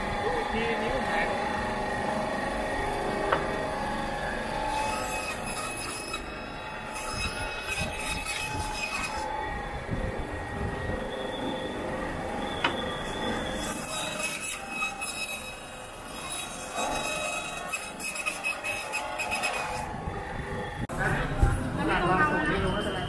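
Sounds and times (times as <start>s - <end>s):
band saw metallic whine: 0.0s - 23.0s
saw blade cutting through ribs: 4.7s - 9.3s, 13.2s - 19.9s.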